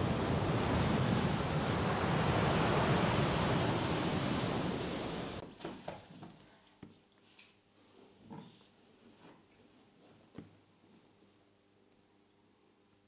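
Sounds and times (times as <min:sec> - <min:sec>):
surf breaking on beach: 0:00.0 - 0:05.4
wind on microphone: 0:00.0 - 0:05.4
faint knocks and rustles: 0:05.4 - 0:11.2.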